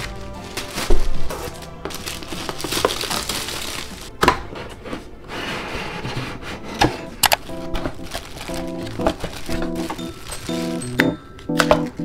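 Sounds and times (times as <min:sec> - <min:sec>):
plastic packaging crinkling: 0:00.0 - 0:04.1, 0:07.4 - 0:10.8.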